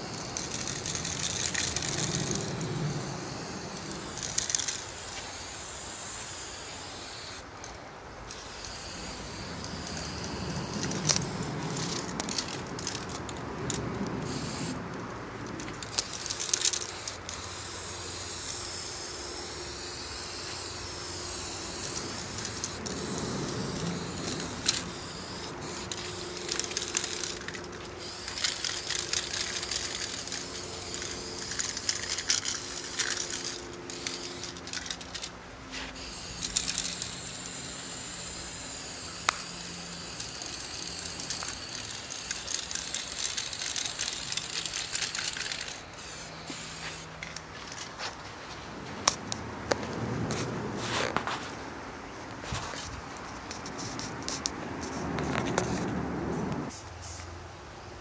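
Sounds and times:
spray paint can hissing: 0:00.0 - 0:07.7, 0:08.3 - 0:47.7, 0:53.5 - 0:57.4.

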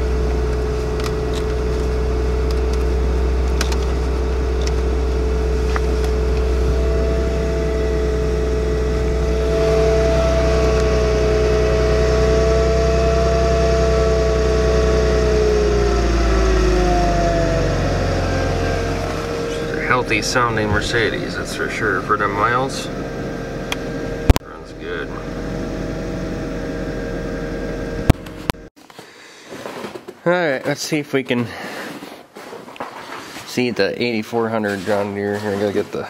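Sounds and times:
car engine idling: 0:00.0 - 0:28.7
higher whine: 0:00.0 - 0:28.7
steady whine: 0:00.0 - 0:28.7.

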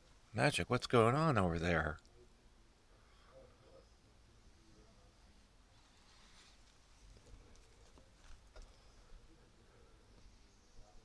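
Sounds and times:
faint light ticks and rustles: 0:05.8 - 0:09.0.

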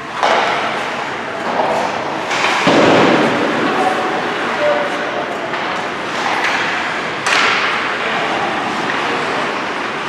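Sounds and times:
arena noise: 0:00.0 - 0:10.0
hockey puck impact crack: 0:00.1 - 0:08.0.

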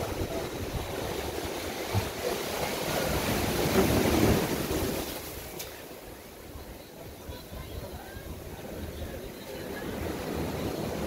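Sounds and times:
wind buffeting microphone: 0:00.0 - 0:05.5
ocean surf washing in: 0:00.0 - 0:11.0.

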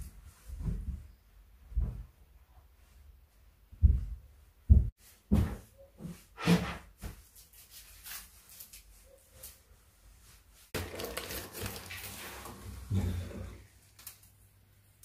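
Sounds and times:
thumps and knocks of movement: 0:03.8 - 0:06.1.

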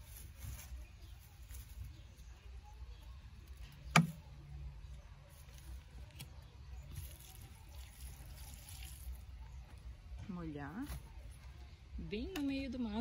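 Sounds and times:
water trickling onto soil: 0:00.0 - 0:04.2, 0:04.8 - 0:10.1.

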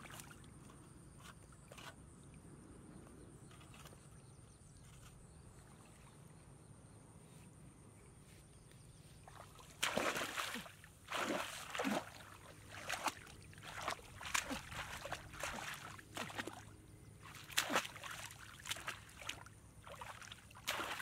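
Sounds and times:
hands splashing in muddy water: 0:09.3 - 0:21.0.

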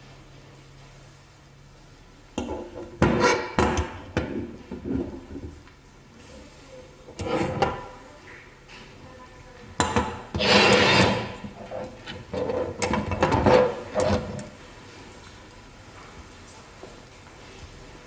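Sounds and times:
scraping rub: 0:07.1 - 0:07.9, 0:10.3 - 0:14.6.

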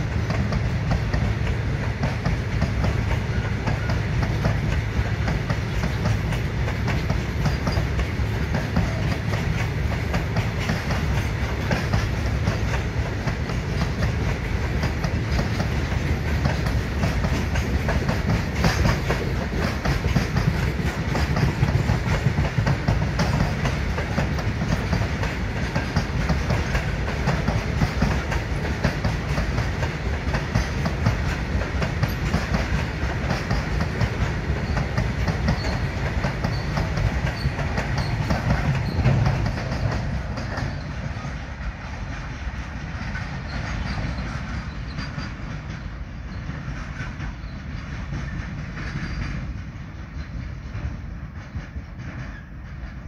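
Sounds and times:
freight train rumbling past: 0:00.0 - 0:53.0
wheels clattering over rails: 0:00.0 - 0:53.0.

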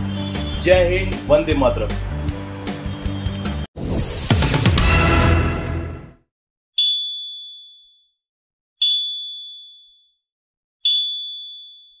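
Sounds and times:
notification bell ding: 0:06.8 - 0:07.9, 0:08.8 - 0:10.0, 0:10.9 - 0:12.0.

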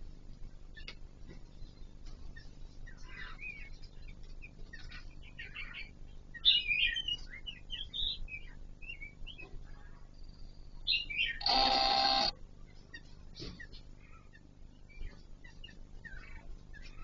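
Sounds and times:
bird chirping and warbling: 0:10.9 - 0:17.0.

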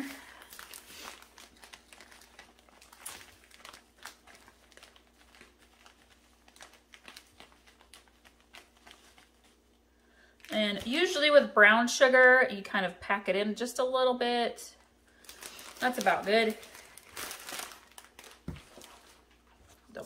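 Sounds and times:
plastic bag crinkling: 0:00.0 - 0:09.8, 0:14.8 - 0:20.0.

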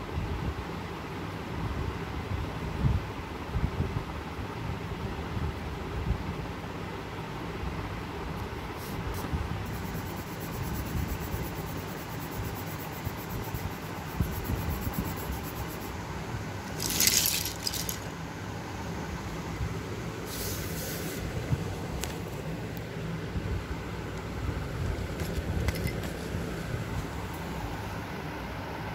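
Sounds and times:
low background hum: 0:00.0 - 0:28.9
paper and pencil rustling: 0:08.8 - 0:15.9, 0:16.7 - 0:18.1, 0:25.1 - 0:27.2.

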